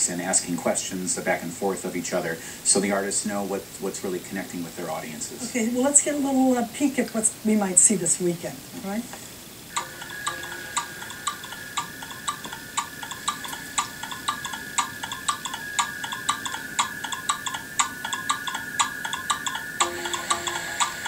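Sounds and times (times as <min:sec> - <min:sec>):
steady high held tone: 0:09.7 - 0:21.0.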